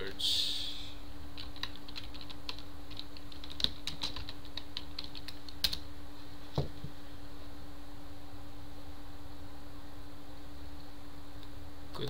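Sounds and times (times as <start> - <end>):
faint hum: 0.0 - 12.0
typing on computer keyboard: 1.4 - 5.8.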